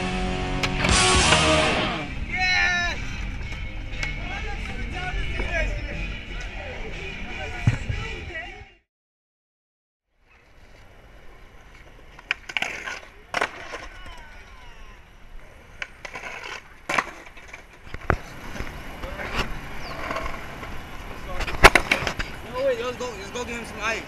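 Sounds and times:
skateboard wheels rolling on stone: 0:10.2 - 0:24.0
skateboard popping and landing: 0:11.7 - 0:14.6, 0:15.7 - 0:22.4.

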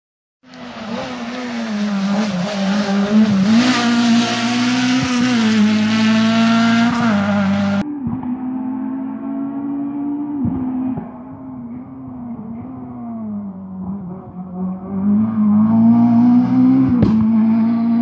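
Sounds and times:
rally car engine at high revs: 0:00.5 - 0:18.0
dull steady drone: 0:02.1 - 0:15.6.

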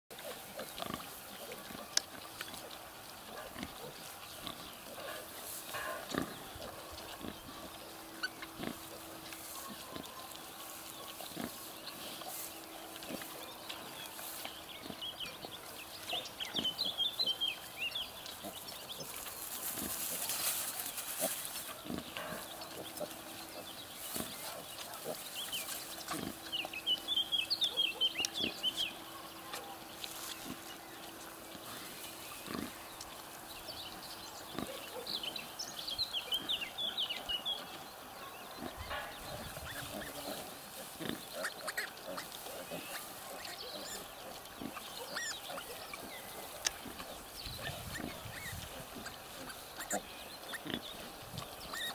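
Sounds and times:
soft pig grunts: 0:00.2 - 0:13.5, 0:21.1 - 0:25.4, 0:31.6 - 0:32.8, 0:34.5 - 0:35.1, 0:38.6 - 0:51.9
straw rustling: 0:00.3 - 0:16.1, 0:18.0 - 0:35.0.

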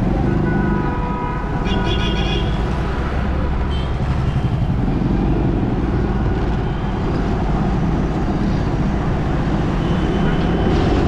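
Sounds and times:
motorcycles passing: 0:00.0 - 0:11.0
traffic rumble: 0:00.0 - 0:11.0.

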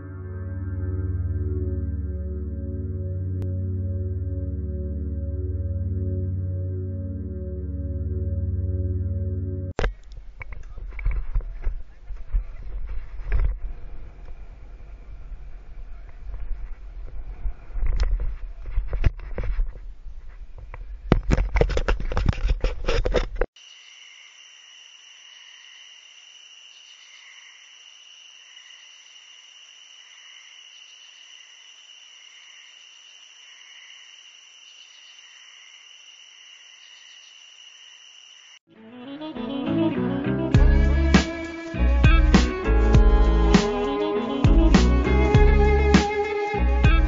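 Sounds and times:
wind buffeting microphone: 0:10.2 - 0:21.2
insect chorus trilling: 0:23.6 - 0:38.6.

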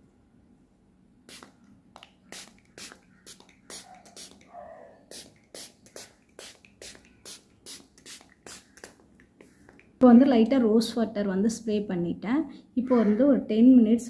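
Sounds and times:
spray bottle hissing puffs: 0:01.3 - 0:04.5, 0:05.1 - 0:10.0.

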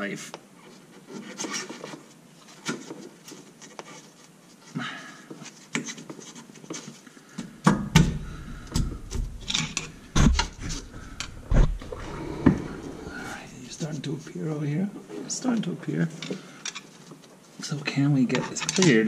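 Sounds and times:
heavy knocks and thumps: 0:07.6 - 0:13.5.

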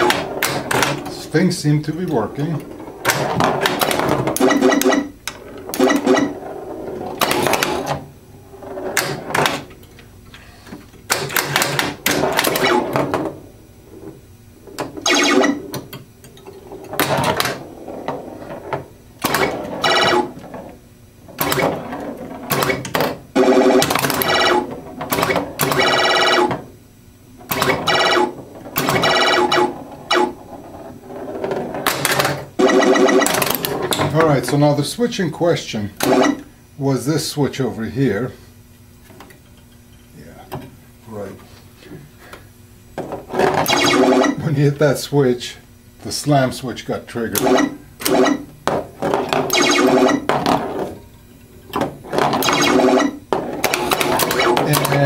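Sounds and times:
electronic sound-effect tones: 0:04.4 - 0:05.2, 0:05.8 - 0:06.4, 0:15.0 - 0:15.7, 0:19.8 - 0:20.3, 0:32.6 - 0:33.4, 0:43.7 - 0:44.4, 0:49.5 - 0:50.3, 0:52.4 - 0:53.2
solenoids clacking: 0:51.7 - 0:55.0.

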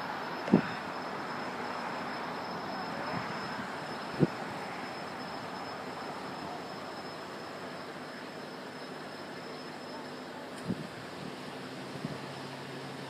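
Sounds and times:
distant jet engine rumble: 0:00.0 - 0:09.3
faint shifting whine: 0:00.0 - 0:13.0.

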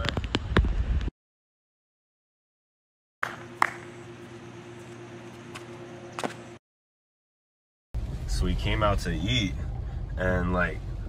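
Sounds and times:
steady low hum: 0:03.2 - 0:06.6, 0:08.0 - 0:11.0.

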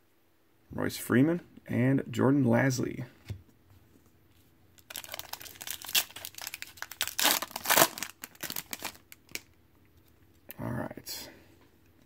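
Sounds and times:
foil wrapper crinkling and tearing: 0:04.8 - 0:09.5.

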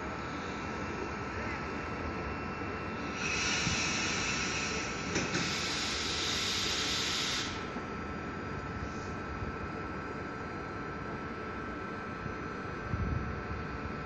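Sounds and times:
thin steady whine: 0:00.0 - 0:11.0
compressed air hissing: 0:02.9 - 0:07.8.

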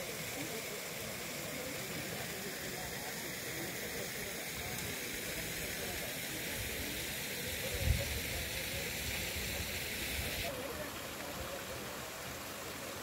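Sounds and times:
flowing water: 0:00.0 - 0:13.0.

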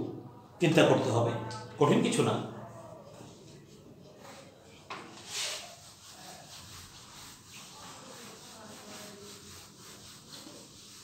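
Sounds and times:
eraser rubbing on whiteboard: 0:05.0 - 0:11.0.

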